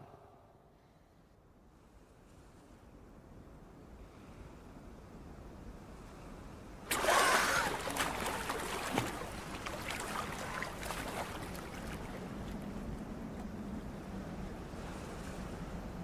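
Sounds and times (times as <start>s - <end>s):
water splashing and streaming: 6.8s - 16.0s.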